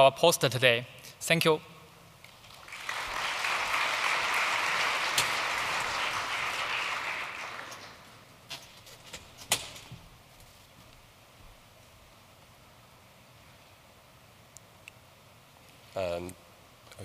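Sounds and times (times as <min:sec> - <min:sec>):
large audience applauding: 0:02.4 - 0:08.2.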